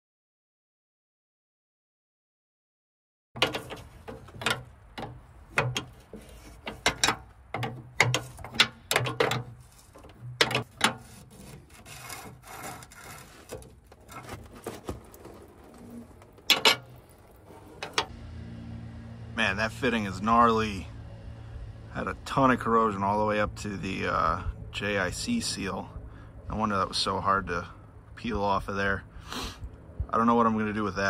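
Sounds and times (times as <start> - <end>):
wrench scraping metal clicks: 3.4 - 14.2, 16.4 - 18.1.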